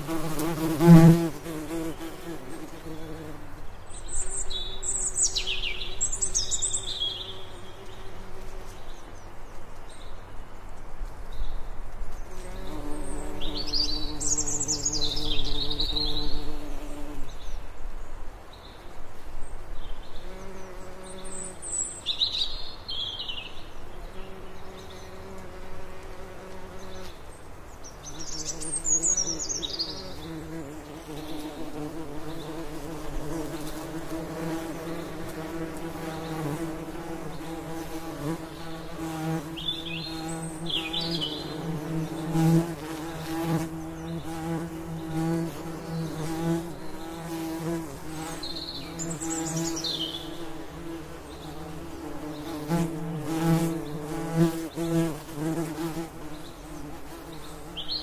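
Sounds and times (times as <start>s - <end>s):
bees buzzing: 0.0s - 3.6s, 28.1s - 58.0s
blackbird singing: 27.9s - 30.4s, 48.4s - 50.5s.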